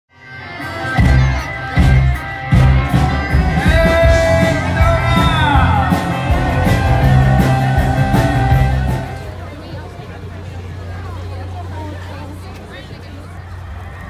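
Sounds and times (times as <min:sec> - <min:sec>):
electric guitar: 0:00.1 - 0:09.3
low bass: 0:01.0 - 0:09.6
person singing: 0:02.9 - 0:09.2.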